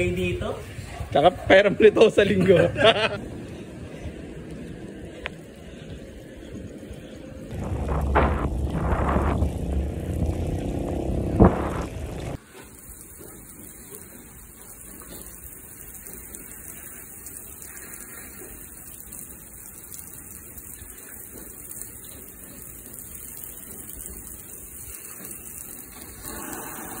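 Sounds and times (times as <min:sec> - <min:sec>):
hose nozzle spraying water: 0:07.5 - 0:27.0
water hitting bicycle frame: 0:07.5 - 0:27.0.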